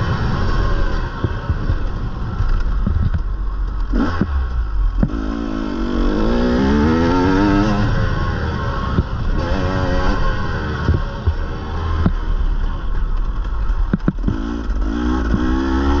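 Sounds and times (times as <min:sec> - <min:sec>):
wind rumble on microphone: 0:00.0 - 0:16.0
dirt bike engine revving: 0:03.9 - 0:12.1, 0:14.2 - 0:16.0.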